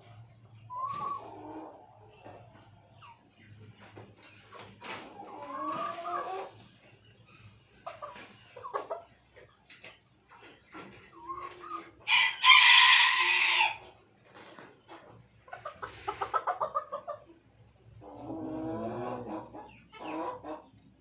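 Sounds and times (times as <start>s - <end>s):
chickens clucking: 0.0s - 21.0s
rooster crowing: 12.1s - 13.8s.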